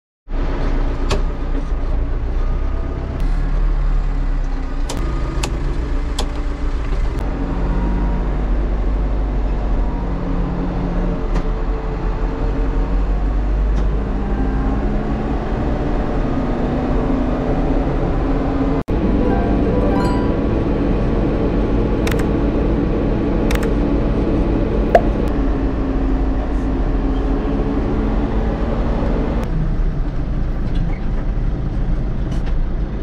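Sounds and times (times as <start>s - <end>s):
sharp clicks: 23.5s - 23.7s.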